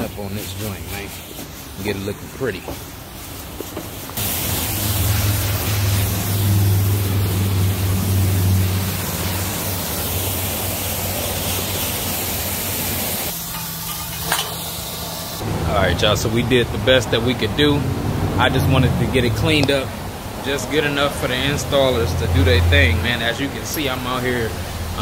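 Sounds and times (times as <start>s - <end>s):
pressure wand spraying water: 0.0s - 15.4s.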